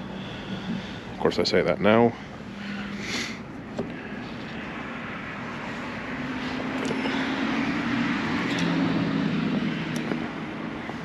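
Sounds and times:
vehicle passing by: 1.9s - 11.0s.

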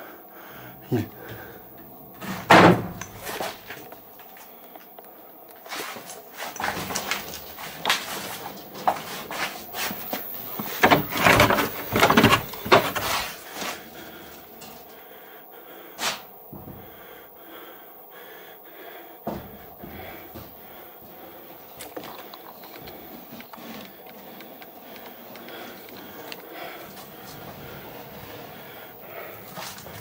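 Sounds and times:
knocks and bangs on wooden boards: 2.2s - 3.2s, 10.4s - 13.3s, 16.5s - 17.0s
quiet rustling: 19.5s - 30.0s.

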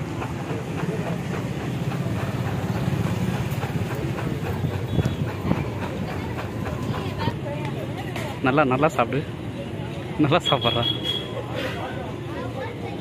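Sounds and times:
low engine rumble: 0.0s - 10.2s
street background noise: 0.0s - 13.0s.

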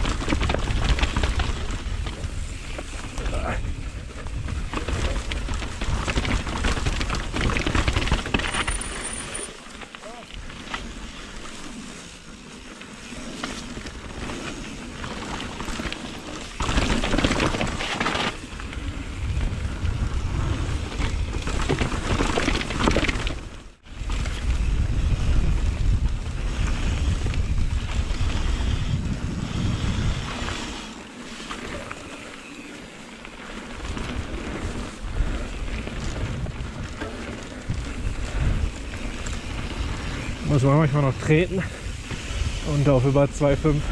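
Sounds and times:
wind buffeting microphone: 0.0s - 8.8s, 18.4s - 22.1s, 23.8s - 30.8s, 33.8s - 43.9s
mountain bike rumble on trail: 0.0s - 43.9s.

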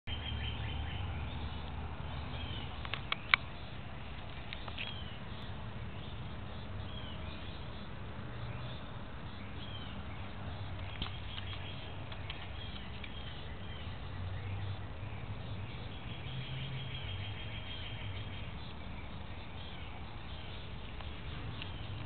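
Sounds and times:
sharp clicks: 2.8s - 3.5s, 4.2s - 5.0s, 10.7s - 13.2s.

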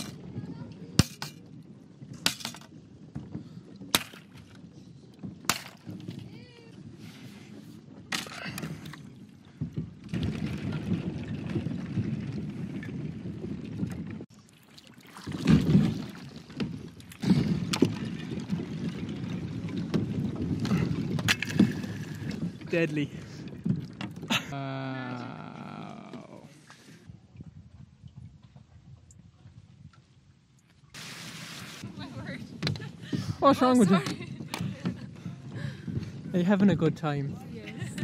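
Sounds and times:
kayak crunching through ice: 2.0s - 24.5s.

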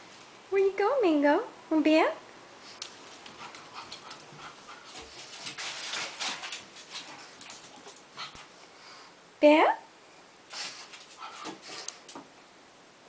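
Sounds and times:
dog panting: 2.8s - 8.5s, 10.6s - 12.1s.

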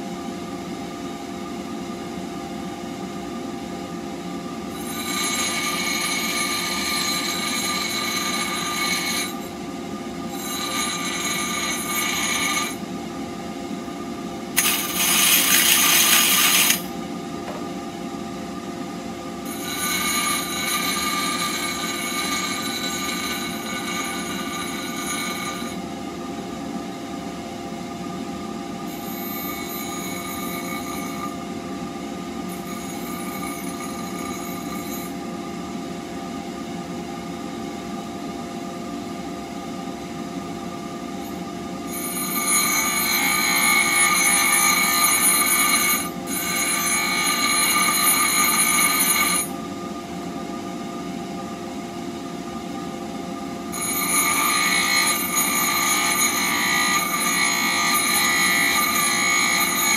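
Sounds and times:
bench grinder motor hum: 4.7s - 9.5s, 10.3s - 12.8s, 14.6s - 16.9s, 19.5s - 25.8s
high-pitched grinding rasp: 4.7s - 9.5s, 10.3s - 12.8s, 14.6s - 16.9s, 19.5s - 25.8s, 32.5s - 35.1s, 41.9s - 49.5s, 53.7s - 59.9s.

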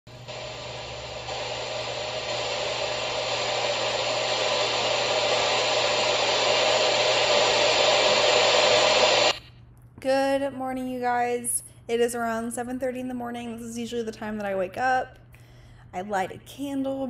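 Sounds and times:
steady rushing hiss: 0.1s - 9.4s
low hum: 0.1s - 10.0s.

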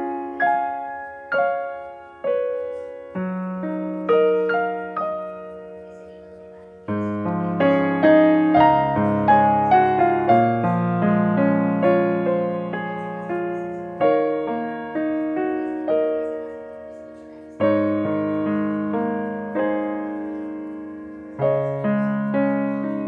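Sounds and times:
slow gentle piano piece: 0.0s - 23.0s.

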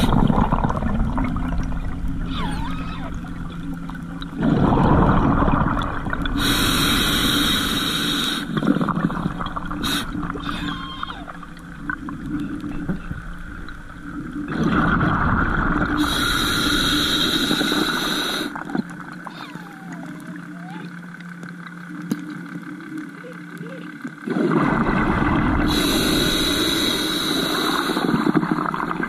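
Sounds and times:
exhaled bubbles rushing: 0.0s - 20.7s, 24.2s - 29.0s
underwater water noise: 0.0s - 29.0s
regulator inhale hissing: 6.4s - 8.6s, 9.8s - 10.2s, 16.0s - 18.6s, 25.6s - 28.4s.

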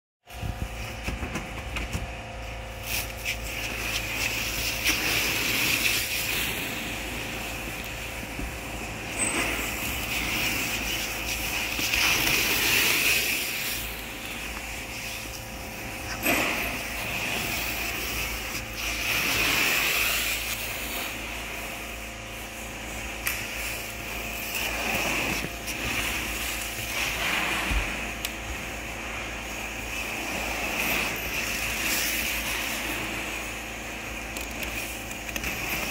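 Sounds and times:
steady low hum: 0.3s - 35.9s.

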